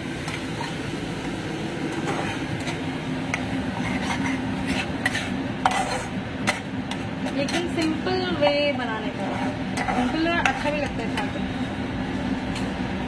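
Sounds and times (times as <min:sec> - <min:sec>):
metal spatula scraping frying pan: 0:01.9 - 0:11.4.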